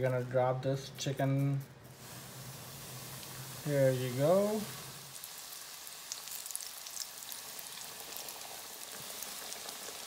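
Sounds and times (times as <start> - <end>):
chicken deep-frying in oil: 1.9 - 10.0.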